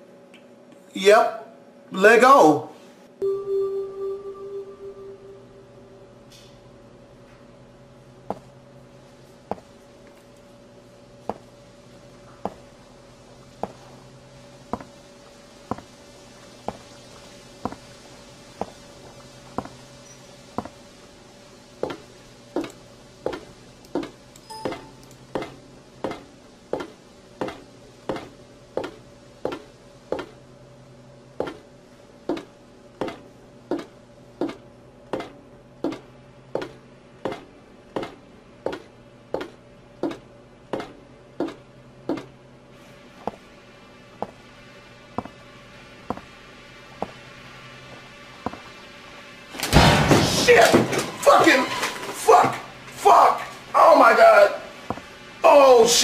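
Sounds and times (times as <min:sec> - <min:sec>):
low ambient drone: 0:03.0 - 0:32.0
video game footsteps: 0:08.1 - 0:21.0, 0:21.7 - 0:30.4, 0:31.4 - 0:43.5, 0:44.1 - 0:48.8, 0:54.8 - 0:55.2.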